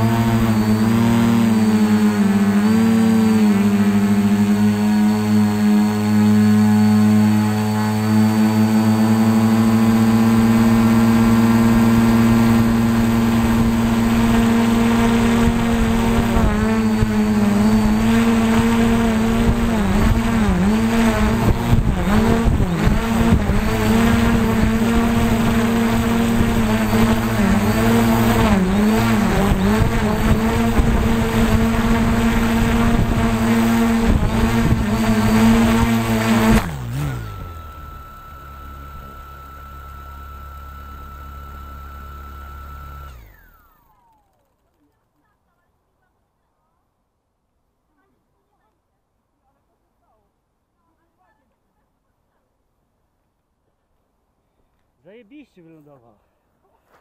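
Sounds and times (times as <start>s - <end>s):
drone motors whining: 0.0s - 44.9s.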